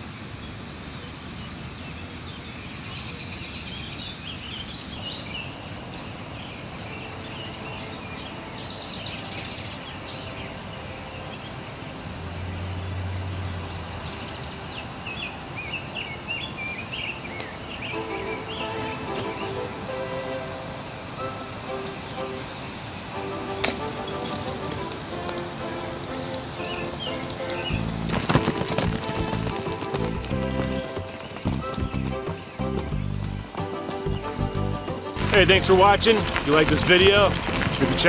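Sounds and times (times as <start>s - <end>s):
background hiss: 0.0s - 38.0s
birds chirping: 0.0s - 38.0s
low hum: 27.7s - 38.0s.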